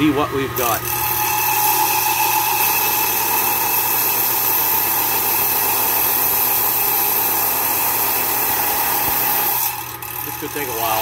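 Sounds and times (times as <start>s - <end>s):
saw blade grinding stone: 0.6s - 11.0s.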